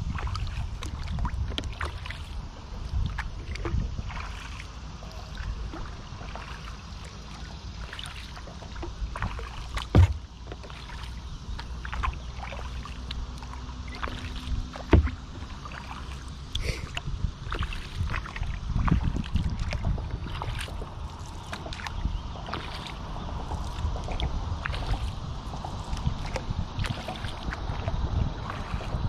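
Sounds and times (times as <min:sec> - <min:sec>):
paddle splashing in water: 0:00.0 - 0:29.0
sharp knocks: 0:09.9 - 0:10.3.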